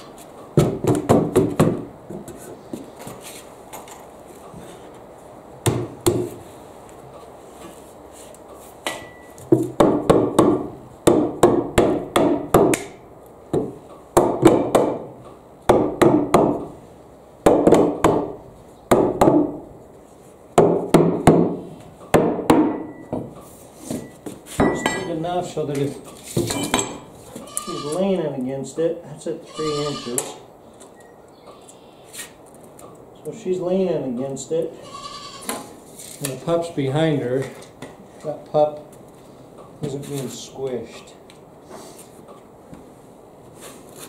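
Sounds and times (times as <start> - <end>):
sledgehammer striking wooden boards: 0.6 - 1.9, 5.6 - 6.4, 8.9 - 13.0, 13.6 - 16.7, 17.4 - 19.6, 20.6 - 23.3.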